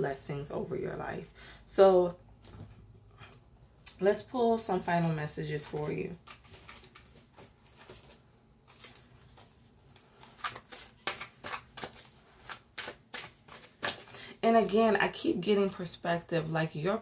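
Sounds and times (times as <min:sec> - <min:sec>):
cards being shuffled: 0:06.2 - 0:14.2.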